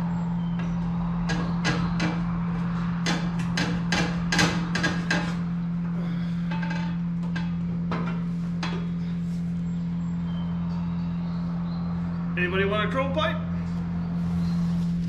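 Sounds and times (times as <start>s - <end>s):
steady low hum: 0.0s - 15.0s
metal knocks and clanks: 0.5s - 5.5s, 6.4s - 9.0s.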